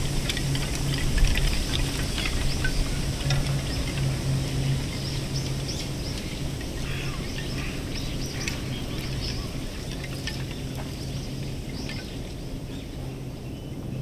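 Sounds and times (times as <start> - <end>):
low steady hum: 0.0 - 14.0
small birds chirping: 2.0 - 14.0.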